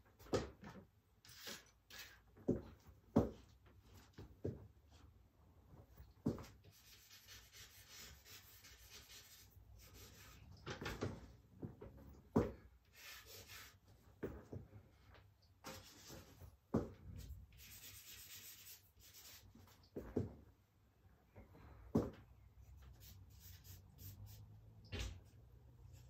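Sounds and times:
charcoal scratching on paper: 1.2s - 2.2s, 6.5s - 10.4s, 12.9s - 13.8s, 15.7s - 16.4s, 17.1s - 19.8s, 22.8s - 24.5s.

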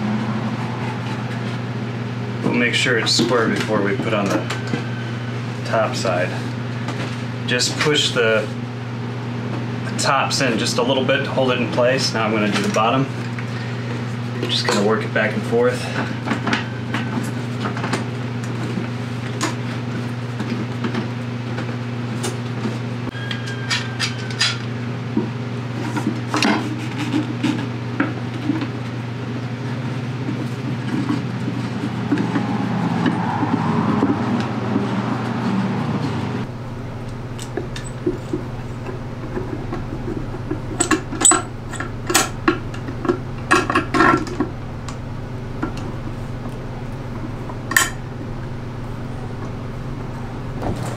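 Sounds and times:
steady low hum: 0.0s - 17.4s, 29.8s - 50.9s.

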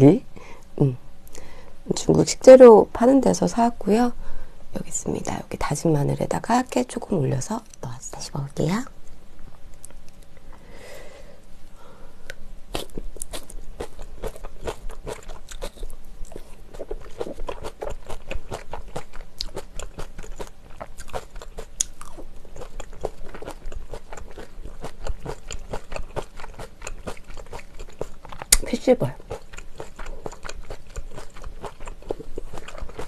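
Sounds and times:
person chewing food: 12.2s - 28.6s, 29.2s - 33.0s
wet mouth clicks: 28.4s - 28.7s.

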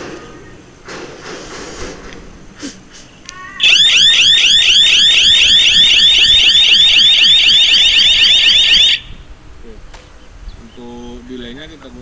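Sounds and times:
high-pitched warbling siren alarm: 3.4s - 9.2s.

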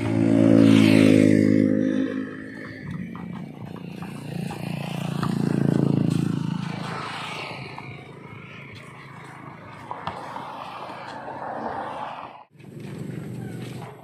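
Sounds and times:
vehicle engine passing: 0.0s - 14.0s.

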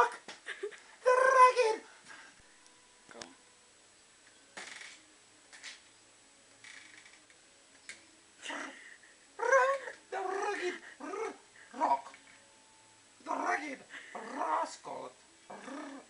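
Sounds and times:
man making wordless calls: 1.0s - 1.9s, 8.4s - 12.2s, 13.2s - 16.0s.

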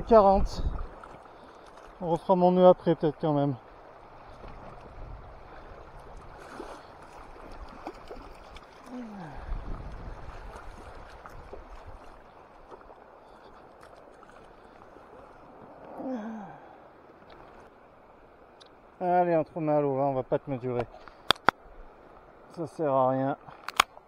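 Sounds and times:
person humming: 8.8s - 9.5s, 15.9s - 16.6s.

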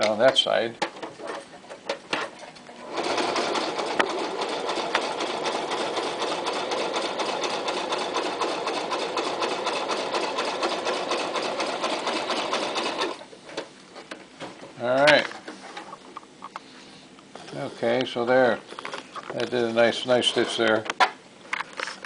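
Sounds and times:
sewing machine stitching leather: 0.8s - 13.2s.

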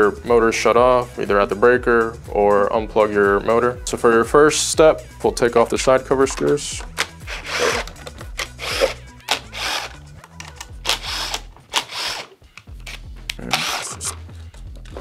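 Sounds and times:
background music with bass: 0.0s - 15.0s
cordless screw gun bursts: 7.0s - 10.0s, 10.8s - 12.4s, 13.5s - 14.1s.

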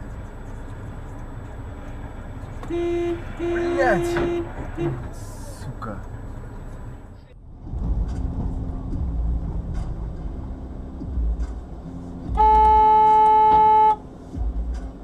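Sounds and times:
car driving rumble: 0.0s - 15.0s
car horn blast: 2.6s - 5.2s, 12.3s - 14.0s.

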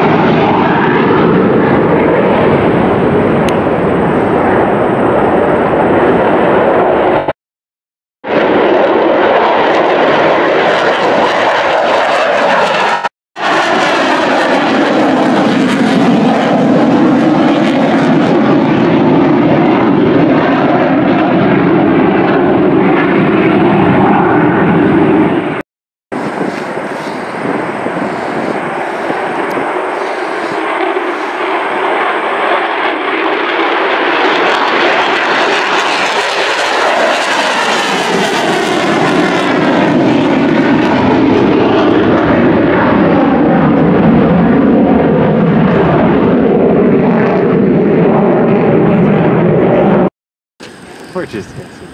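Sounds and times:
fighter jets flying over: 0.0s - 7.4s, 8.2s - 25.6s, 26.2s - 51.9s.

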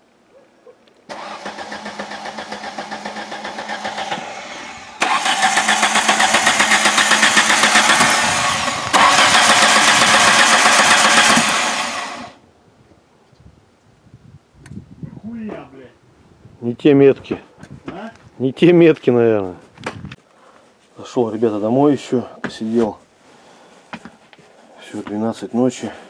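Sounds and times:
engine cranking without starting: 1.1s - 12.4s.

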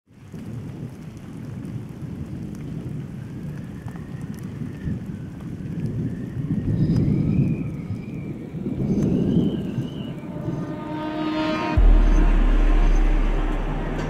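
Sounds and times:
deep ambient rumble: 8.6s - 14.0s
thin wavering tone: 9.4s - 14.0s.

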